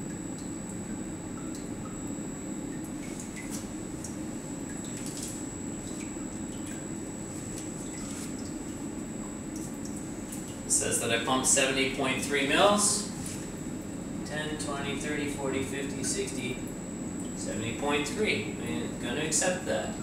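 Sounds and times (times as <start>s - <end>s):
liquid dripping and gurgling: 0.0s - 10.7s, 15.8s - 17.5s
faint high whine: 0.0s - 20.0s
pump humming: 0.0s - 20.0s.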